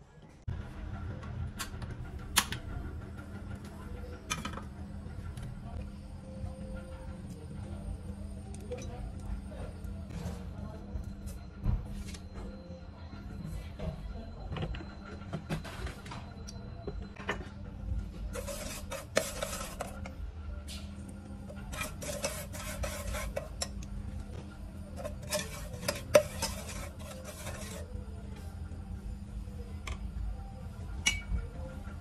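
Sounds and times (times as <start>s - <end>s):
metal ladle scraping pot: 18.3s - 20.1s, 21.5s - 23.8s, 25.0s - 27.9s.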